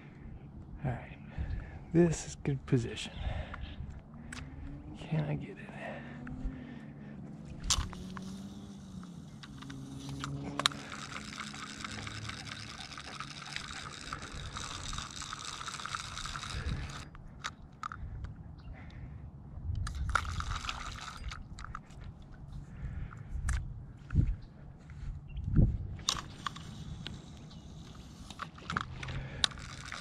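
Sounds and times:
wind: 0.0 - 30.0
fishing reel cranking whir: 7.4 - 18.0, 19.8 - 21.9, 26.0 - 30.0
sharp reel click: 7.6 - 18.0, 19.8 - 21.8, 26.0 - 30.0.

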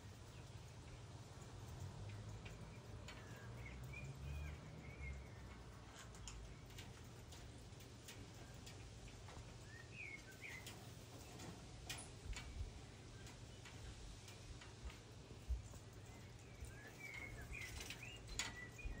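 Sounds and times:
faint bird chirps: 8.1 - 11.6, 15.4 - 19.0.

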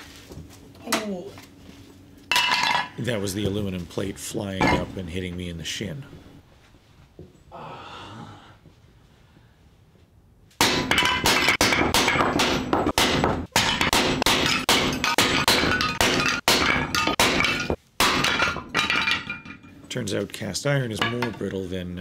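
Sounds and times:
cast iron plate cracking: 10.6 - 19.7.

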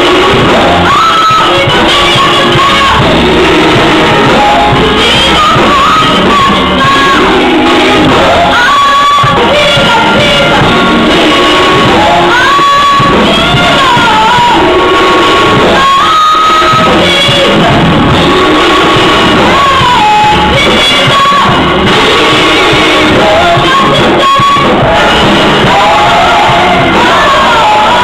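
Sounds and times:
gospel singing with music: 0.0 - 28.0
singers shouting: 0.0 - 28.0.

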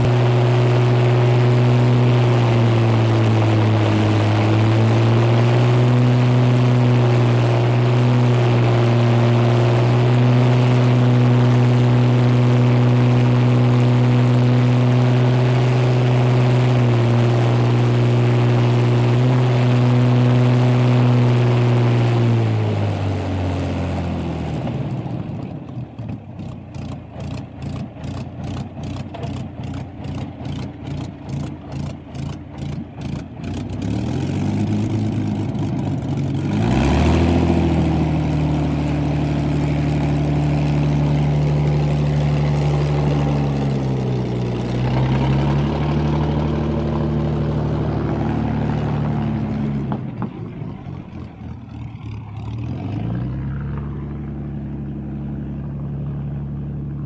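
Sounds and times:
piston aircraft engine running: 0.0 - 57.0.

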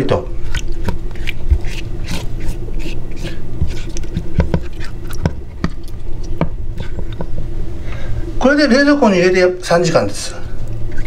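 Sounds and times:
wet squishing and crinkling paper: 0.3 - 7.0.

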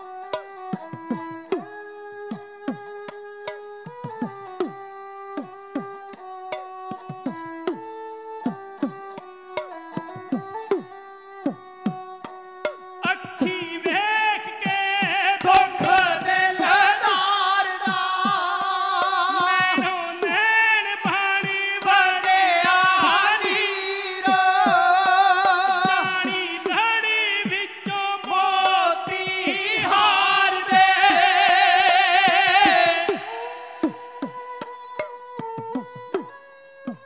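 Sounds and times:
bowed string instrument: 0.0 - 37.0
men singing: 13.0 - 34.6
small hand drum strokes: 22.6 - 37.0.

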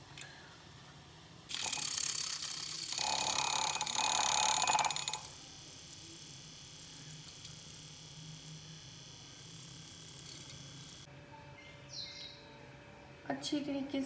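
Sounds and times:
milk frother whirring: 1.5 - 11.1.

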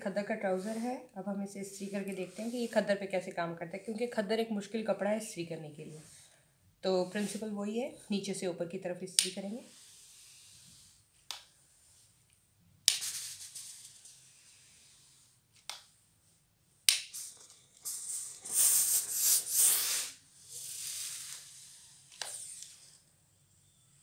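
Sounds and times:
garment steamer hissing: 9.4 - 11.0, 17.1 - 22.9.

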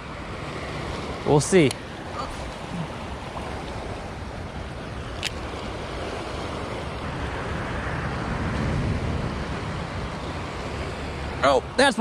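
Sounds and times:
fast river current rushing: 0.0 - 12.0
highway traffic noise: 0.0 - 12.0
wind on microphone: 2.2 - 11.4.

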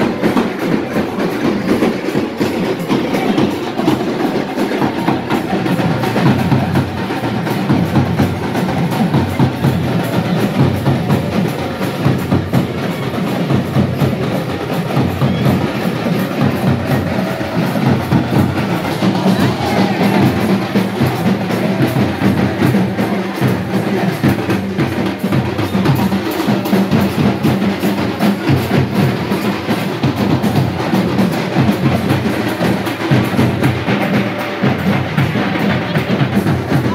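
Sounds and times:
drums playing fast rhythm: 0.0 - 36.9.

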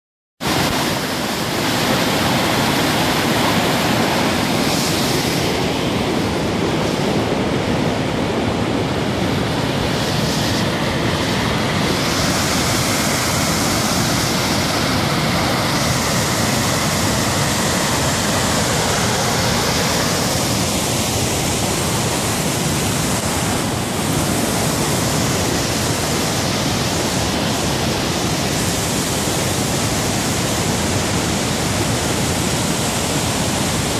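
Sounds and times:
water rushing down rocks: 0.4 - 33.9.

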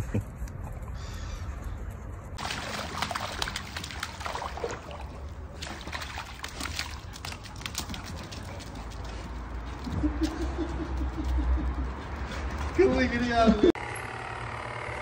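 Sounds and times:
water splashing and trickling: 2.4 - 11.1.

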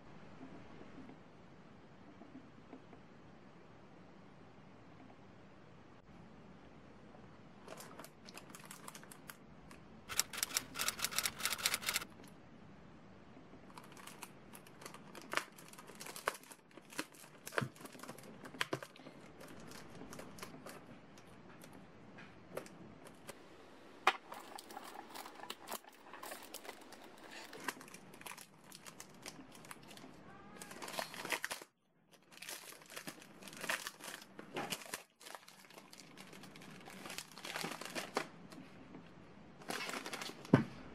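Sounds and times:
plastic packaging crinkling: 7.7 - 9.4, 10.1 - 12.1, 13.7 - 20.9, 24.2 - 38.4, 39.6 - 40.5.

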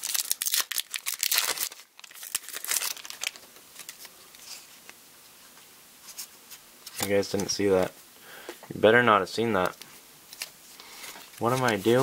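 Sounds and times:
foil wrapper crinkling and tearing: 0.0 - 4.7, 10.3 - 12.0
cards rustling: 0.0 - 5.0, 6.0 - 8.0, 9.4 - 12.0.

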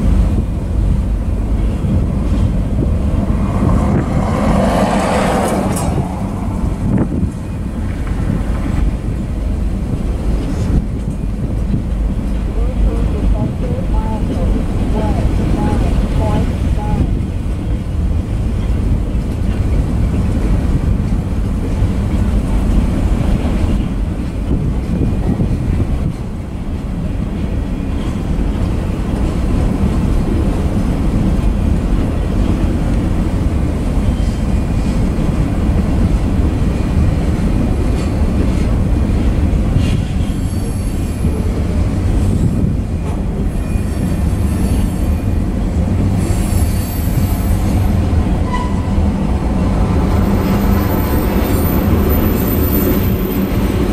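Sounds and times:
train wheels rumbling on rail: 0.0 - 53.9
wheel squeals: 48.4 - 49.0.

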